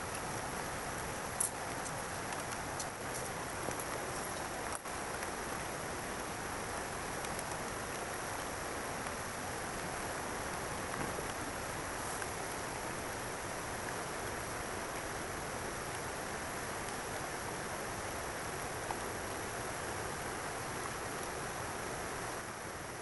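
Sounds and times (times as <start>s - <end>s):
faint ticks: 1.3s - 5.3s, 7.2s - 9.2s.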